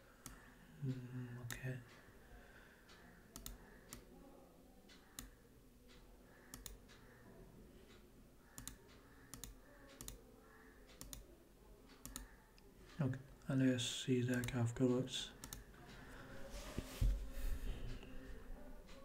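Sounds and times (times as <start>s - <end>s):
computer keyboard and mouse clicks: 3.4s - 4.1s, 4.9s - 7.1s, 7.9s - 10.2s, 10.9s - 11.3s, 11.9s - 12.4s, 15.4s - 15.7s.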